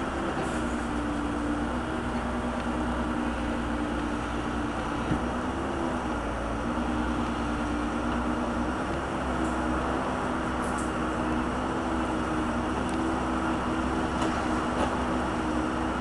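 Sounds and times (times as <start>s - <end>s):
backhoe engine running: 0.0s - 16.0s.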